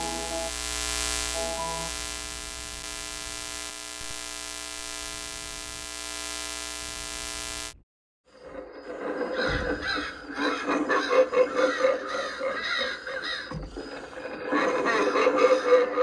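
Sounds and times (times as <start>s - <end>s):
short glitchy tones: 0.0s - 7.8s
television static buzz: 0.0s - 7.8s.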